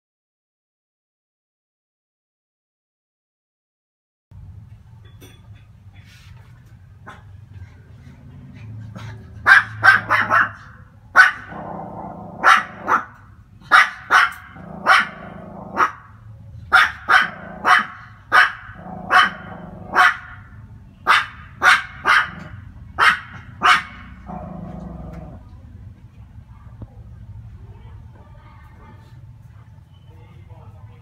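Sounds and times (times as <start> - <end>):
small dog barking: 9.4 - 25.4.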